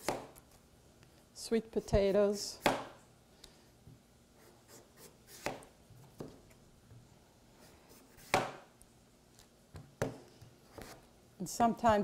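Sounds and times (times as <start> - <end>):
knife chopping on cutting board: 0.0 - 0.4, 2.6 - 3.0, 5.0 - 6.4, 8.2 - 8.7.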